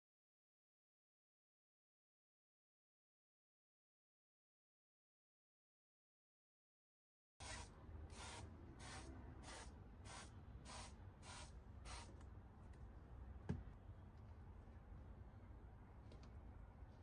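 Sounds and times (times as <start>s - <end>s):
spray bottle hisses: 7.4s - 12.1s.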